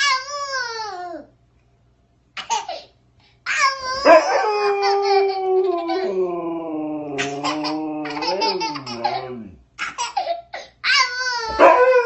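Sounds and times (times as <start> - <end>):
toddler howling and crying: 0.0 - 1.3, 3.5 - 9.6, 10.8 - 12.0
dog howling: 4.0 - 9.6, 11.4 - 12.0.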